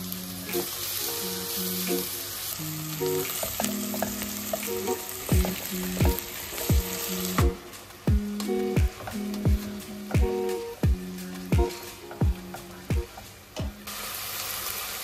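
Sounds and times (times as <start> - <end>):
background music: 0.0 - 14.0
vegetables sizzling in oil: 0.0 - 15.0.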